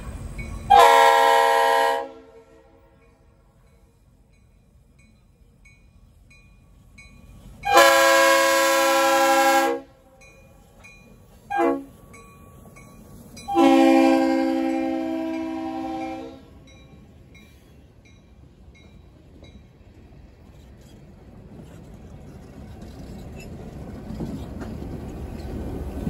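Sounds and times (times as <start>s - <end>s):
locomotive air horn blasts: 0.7s - 3.0s, 7.6s - 10.2s, 11.5s - 12.0s, 13.5s - 16.6s.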